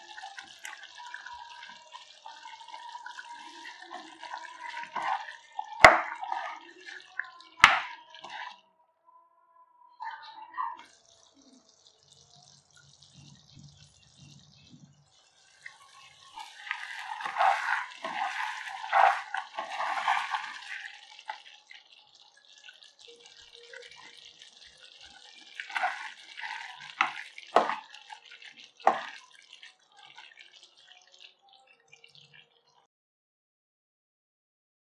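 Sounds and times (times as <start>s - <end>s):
sauce simmering and squelching: 0.0s - 8.6s, 10.8s - 32.9s
wet plops: 3.9s - 8.5s, 25.6s - 28.0s.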